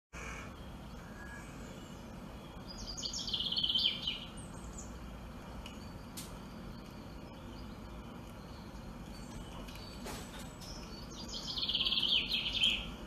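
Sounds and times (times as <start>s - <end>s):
bird chirps: 0.2s - 5.1s, 5.7s - 13.0s
steady low hiss: 0.2s - 13.0s.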